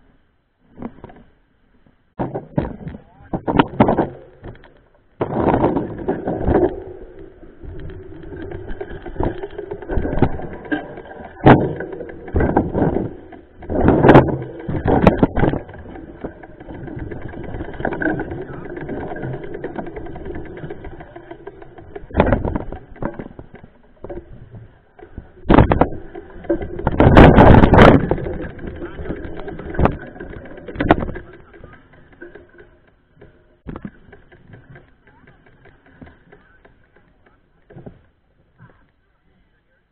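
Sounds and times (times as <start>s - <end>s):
bike rattling: 0.7s - 39.2s
wheels knocking on bumps: 2.2s - 39.0s.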